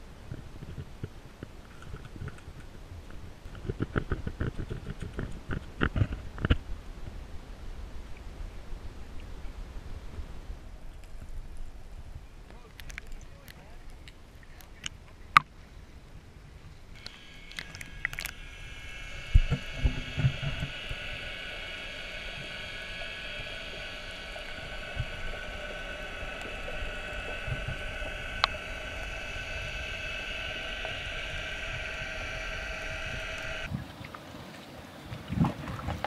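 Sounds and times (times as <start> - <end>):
underwater machine hum: 10.7 - 15.4, 16.8 - 34.0.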